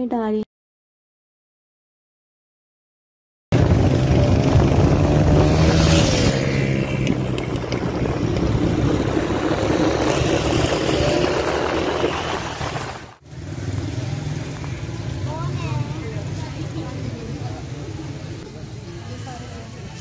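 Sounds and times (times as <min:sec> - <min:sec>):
motorcycle engine running: 0:03.5 - 0:18.2
road noise: 0:03.5 - 0:20.0
wind: 0:03.5 - 0:20.0.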